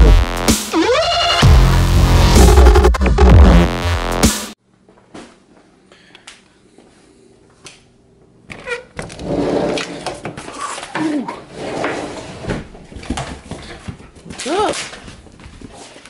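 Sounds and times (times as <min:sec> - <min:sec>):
sliding glass door opening: 0:09.0 - 0:10.2.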